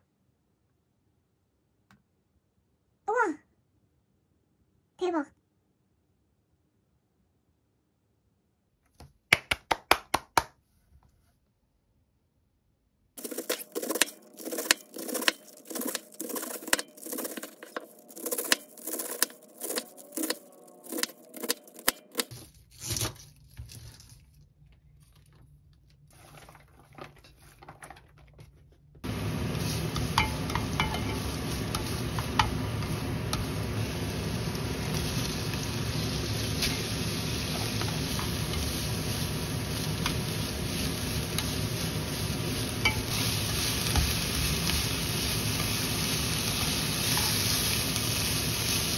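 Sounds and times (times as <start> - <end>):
frying sizzle in a pan: 29.0 - 48.9.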